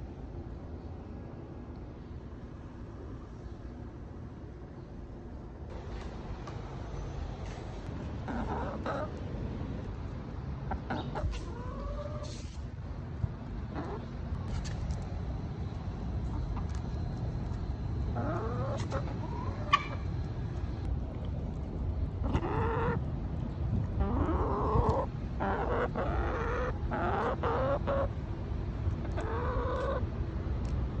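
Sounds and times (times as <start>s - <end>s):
chickens clucking: 8.2s - 9.2s, 10.6s - 12.4s, 13.7s - 14.1s, 18.1s - 20.3s, 22.2s - 23.0s, 24.0s - 28.1s, 29.0s - 30.0s.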